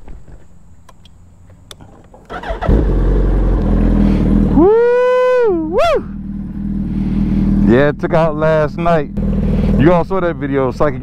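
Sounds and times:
motorcycle engine starting and idling: 1.7s - 11.0s
engine revving: 2.3s - 11.0s.

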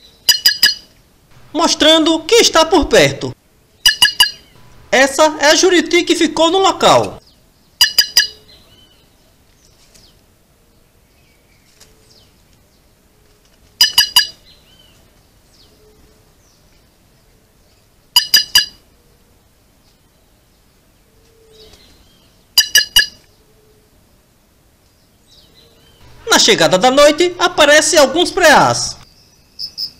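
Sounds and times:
jays calling: 0.3s - 3.1s, 3.8s - 7.2s, 7.8s - 8.8s, 13.8s - 14.4s, 22.6s - 23.2s, 26.0s - 29.9s
doves hooting: 3.8s - 7.2s, 25.6s - 29.1s.

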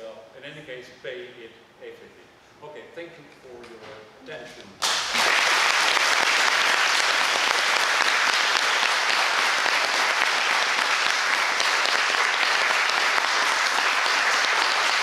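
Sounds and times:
audience applauding: 4.8s - 15.0s.

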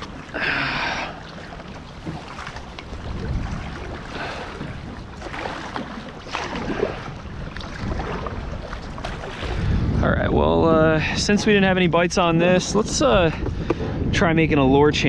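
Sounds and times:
paddle strokes splashing in water: 0.0s - 9.8s
wind buffeting microphone: 0.0s - 15.0s.

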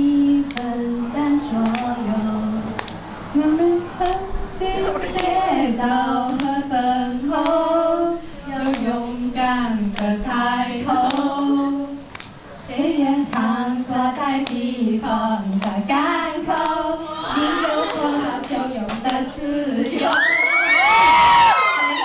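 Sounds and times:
girls singing into a microphone: 0.0s - 22.0s
hands clapping: 0.5s - 0.7s, 1.6s - 1.9s, 2.8s - 3.0s, 5.0s - 5.4s, 8.6s - 8.9s, 11.0s - 11.3s, 12.1s - 12.4s, 14.4s - 14.6s, 15.6s - 15.8s, 17.8s - 19.2s.

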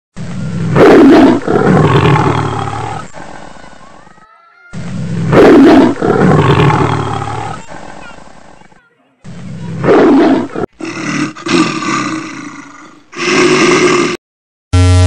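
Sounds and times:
big cat roaring: 0.4s - 3.4s, 4.9s - 8.6s, 9.7s - 14.2s.

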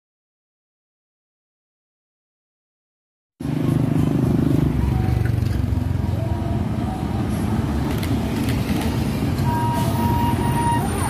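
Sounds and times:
street traffic noise: 3.4s - 11.0s
truck diesel engine passing: 3.4s - 11.0s.

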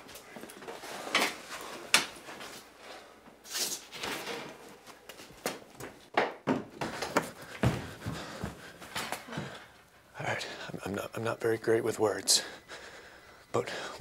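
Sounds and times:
knocks and thumps: 6.1s - 8.6s.

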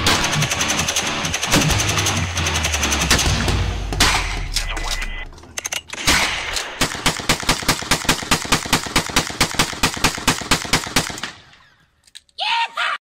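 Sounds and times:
rapid rifle gunfire: 0.0s - 4.5s, 6.0s - 11.4s
loud gunshot: 2.9s - 4.5s, 6.0s - 7.2s.

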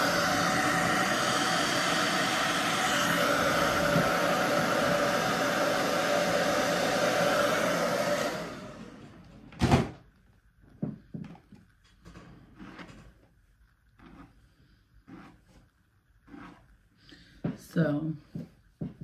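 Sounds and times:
hair dryer blowing: 0.0s - 9.4s.

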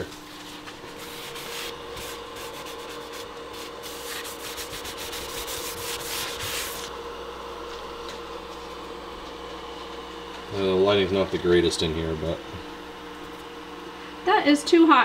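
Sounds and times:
appliance hum: 0.0s - 15.0s
paper towels rustling: 0.2s - 6.9s.

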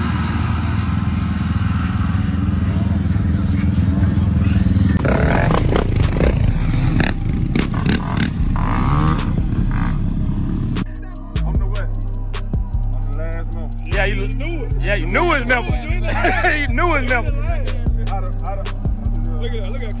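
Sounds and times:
quad engine revving: 0.0s - 10.9s
voices: 1.6s - 20.0s.

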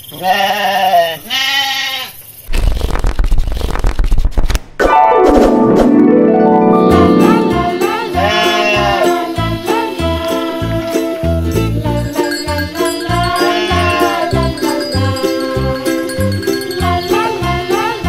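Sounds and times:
sheep bleating: 0.2s - 2.2s, 8.1s - 9.4s, 12.7s - 14.6s
music jingle: 4.8s - 18.0s.

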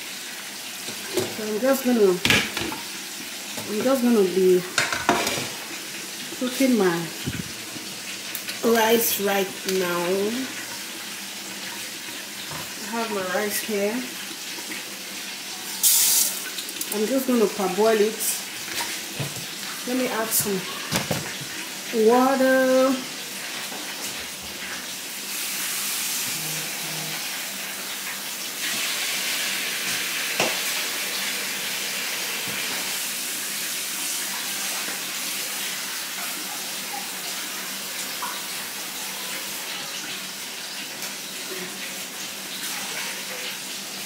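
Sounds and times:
water running from tap: 0.0s - 44.0s.

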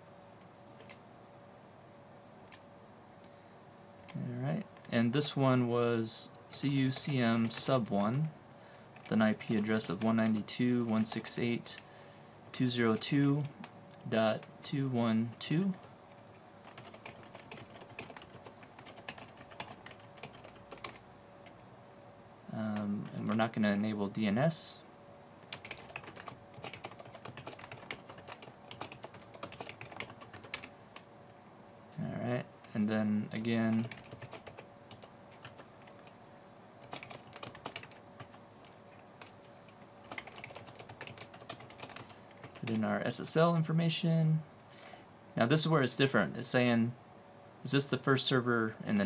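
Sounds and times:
keyboard typing: 9.0s - 11.8s, 16.6s - 21.6s, 25.4s - 30.7s, 33.7s - 36.2s, 36.8s - 42.8s.

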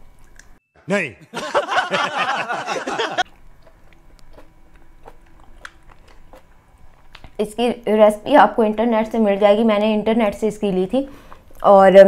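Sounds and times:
man talking: 0.8s - 1.4s
person chewing: 3.2s - 7.4s.

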